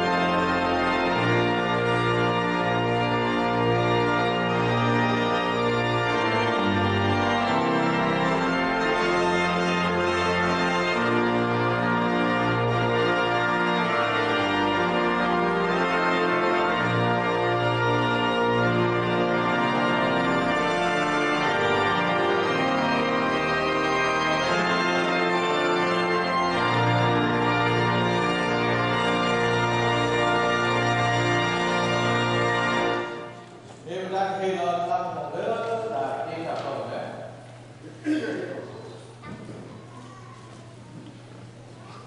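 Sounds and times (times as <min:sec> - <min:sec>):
organ playing slow chords: 0:00.0 - 0:41.9.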